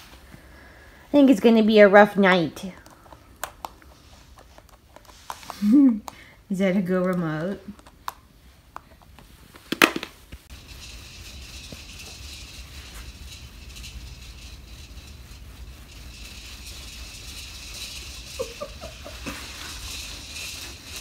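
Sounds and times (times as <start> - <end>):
steady hiss: 8.1 - 21.0
low hum: 10.5 - 21.0.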